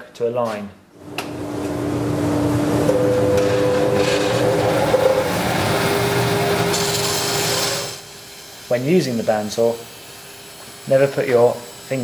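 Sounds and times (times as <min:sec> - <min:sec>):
bandsaw cutting timber: 0:02.9 - 0:08.0.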